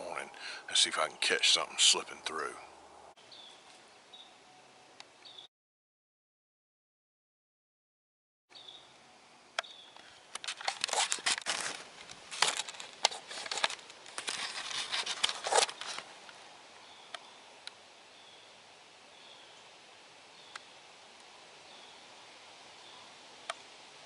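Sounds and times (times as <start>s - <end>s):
camera handling rustling: 10.3s - 16.1s
faint clicks: 20.5s - 21.3s.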